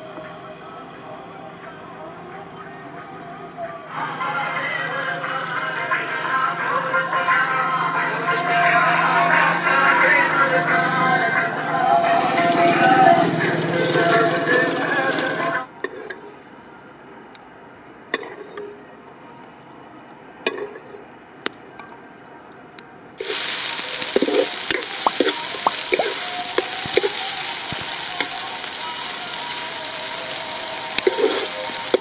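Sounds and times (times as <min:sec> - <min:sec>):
food sizzling in hot oil: 0:23.2 - 0:32.0
oil popping: 0:23.2 - 0:32.0.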